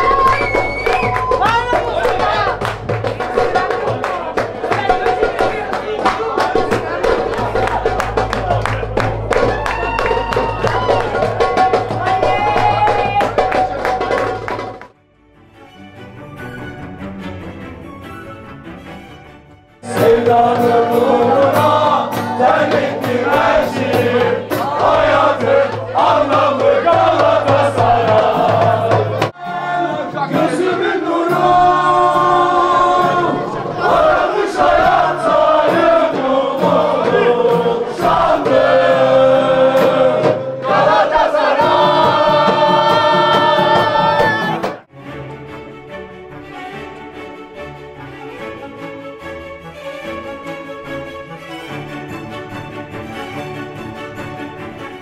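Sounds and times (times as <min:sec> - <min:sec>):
steady beat: 0:00.0 - 0:14.8, 0:19.8 - 0:31.8, 0:33.8 - 0:44.9
quieter music: 0:00.0 - 0:44.0
acoustic guitar: 0:19.1 - 0:45.0
man singing: 0:19.8 - 0:24.9, 0:26.3 - 0:34.0
crowd singing along: 0:19.8 - 0:44.9.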